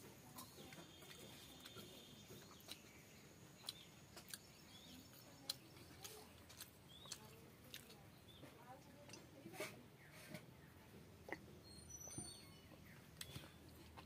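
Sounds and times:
mouth clicks and smacks chewing: 0.4 - 8.4, 11.2 - 11.5, 12.8 - 14.0
faint bird chirps: 11.6 - 13.8.

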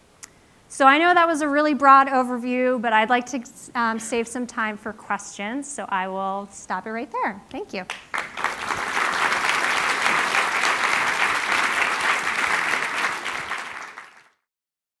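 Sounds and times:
audience applauding: 7.9 - 14.4.

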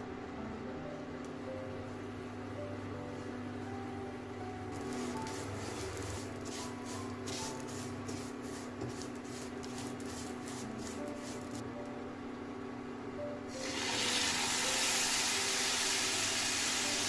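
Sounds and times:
steady low hum: 0.0 - 13.6.

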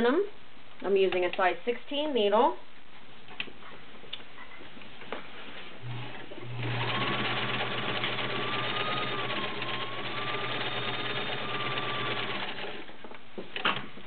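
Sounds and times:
sewing machine stitching: 5.9 - 12.9.

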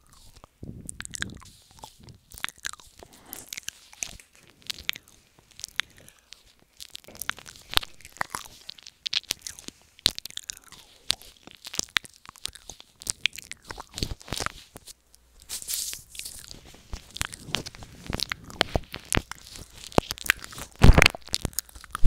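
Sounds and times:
wet mouth clicks and smacks: 0.0 - 15.0, 16.1 - 22.0
breathy hiss: 2.9 - 11.4.

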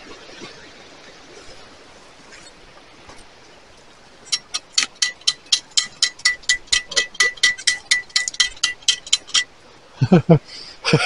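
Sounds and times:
metal detector pinpointer beeping: 4.3 - 9.5.

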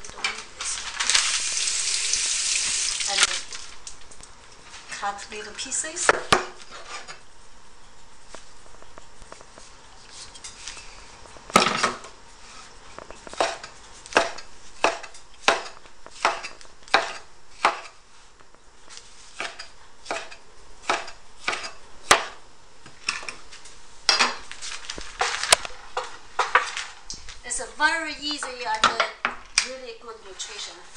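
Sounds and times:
knife chopping on wooden board: 13.3 - 18.0, 19.4 - 22.4.

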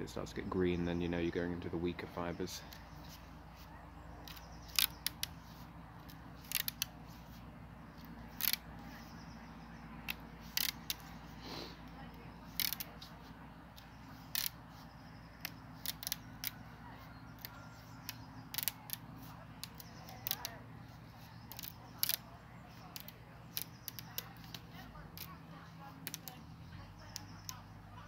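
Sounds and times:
wooden rod clicking and cracking: 4.2 - 7.4, 8.0 - 8.9, 10.0 - 11.2, 12.5 - 27.8.

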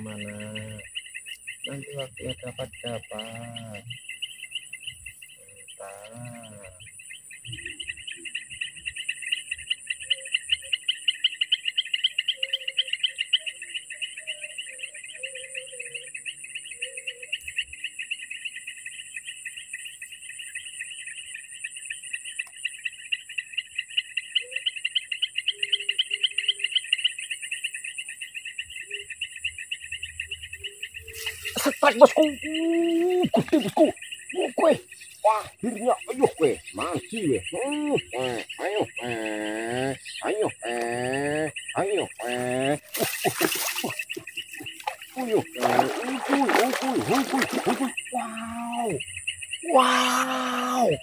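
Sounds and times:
insects trilling: 0.0 - 51.0
high-pitched insect hiss: 16.9 - 51.0.

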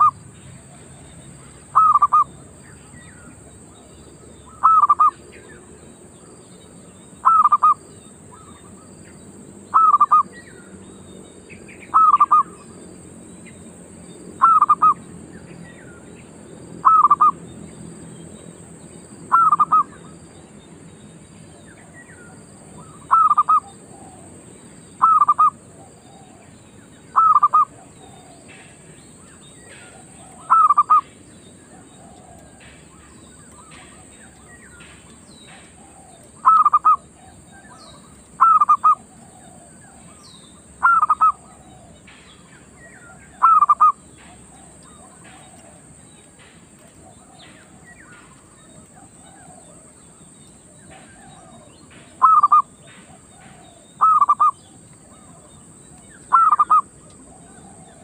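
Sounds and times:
dove double-note calls: 0.0 - 58.0.

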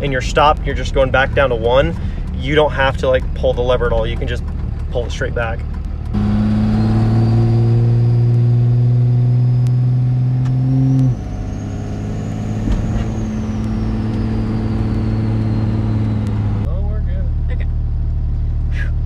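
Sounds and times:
diesel engine drone under load: 0.0 - 19.0
faint high whistle: 10.7 - 16.3.

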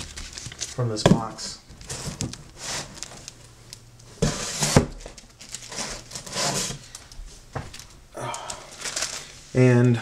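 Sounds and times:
paper rustling: 0.0 - 3.3, 4.2 - 6.9, 8.6 - 9.9.

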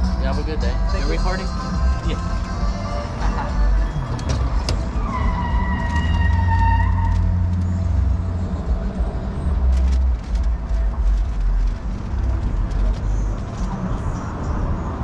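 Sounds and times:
car cabin rumble: 3.1 - 6.4.

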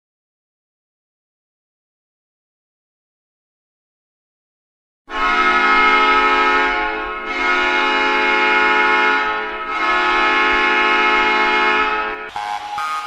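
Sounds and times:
hockey goal horn blasts: 5.1 - 13.0.

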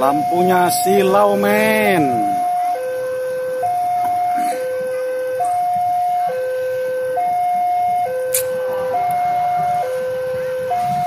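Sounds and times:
sharp click: 8.3 - 8.5.

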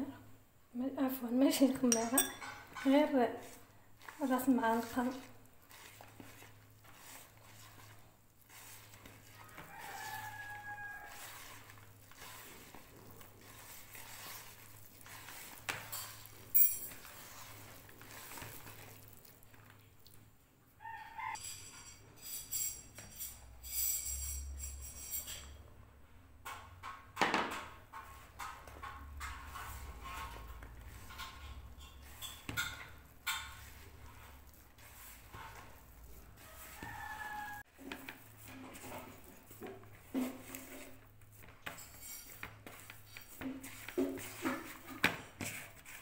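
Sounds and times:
hands rubbing dough in plastic bowl: 2.9 - 20.2, 29.3 - 46.0.

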